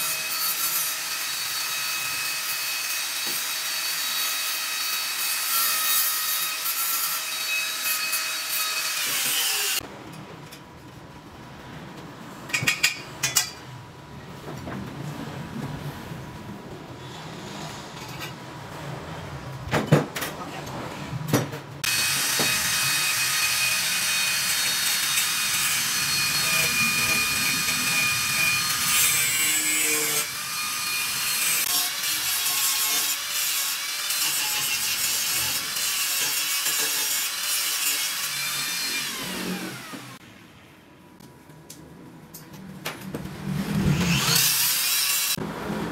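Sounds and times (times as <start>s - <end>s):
angle grinder whining: 21.8s - 40.2s, 43.8s - 45.4s.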